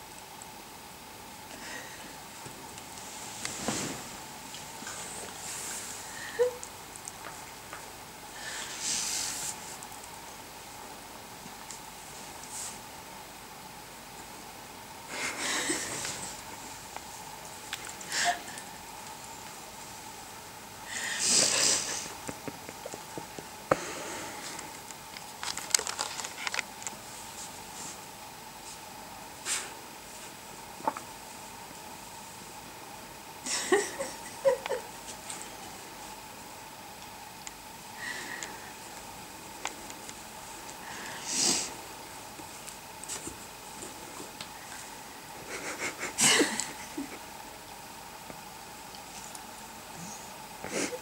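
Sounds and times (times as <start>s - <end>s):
dogs rustling on a blanket: 2.3s - 6.0s, 8.6s - 10.0s, 11.5s - 12.9s, 24.3s - 30.4s, 39.8s - 45.0s.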